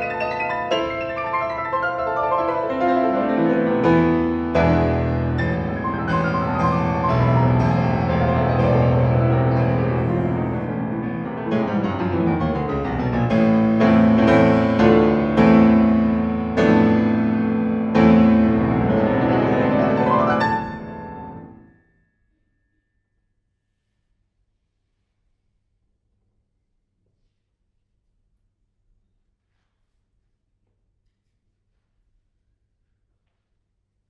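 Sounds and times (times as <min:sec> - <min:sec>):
solo classical piano: 0:00.0 - 0:21.7.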